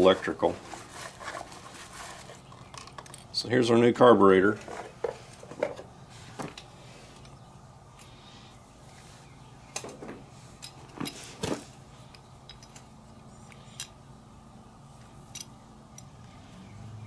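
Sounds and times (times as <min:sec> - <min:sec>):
light metal clicks and clinks: 0:12.1 - 0:12.9.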